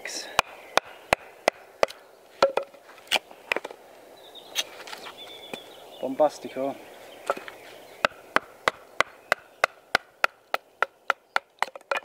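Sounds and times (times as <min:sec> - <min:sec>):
log splitting: 0:07.3 - 0:12.0.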